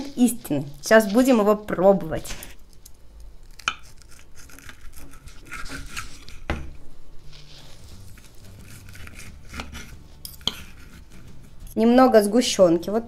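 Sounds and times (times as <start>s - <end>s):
knife sawing through pastry: 3.8s - 6.5s, 7.3s - 11.6s.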